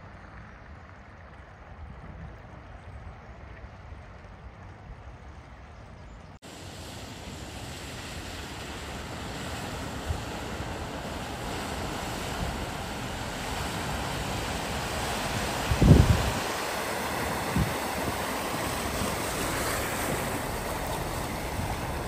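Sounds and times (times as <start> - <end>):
wind buffeting microphone: 0.2 - 6.3, 7.6 - 22.0
car splashing through floodwater: 6.5 - 22.0.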